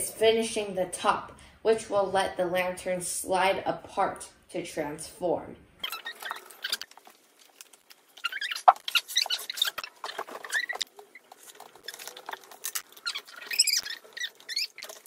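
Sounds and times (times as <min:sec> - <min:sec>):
wood pieces scraping: 0:05.8 - 0:15.0
wood pieces squeaking: 0:05.8 - 0:15.0.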